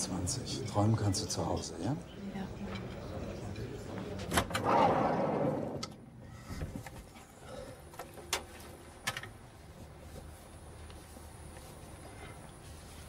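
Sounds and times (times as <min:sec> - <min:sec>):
restaurant background: 0:00.0 - 0:06.5.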